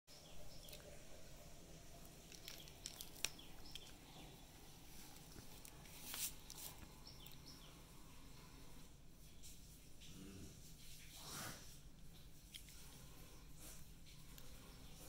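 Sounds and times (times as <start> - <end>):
faint bird chirps: 0.1 - 4.6, 6.5 - 8.4.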